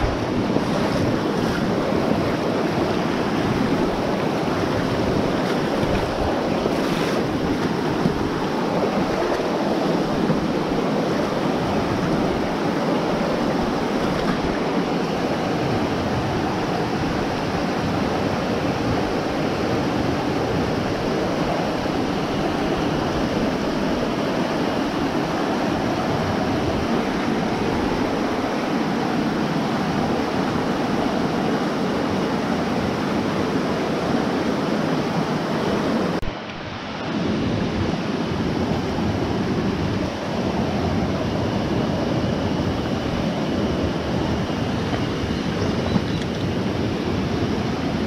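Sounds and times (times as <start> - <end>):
stream rushing over rocks: 0.0 - 48.0.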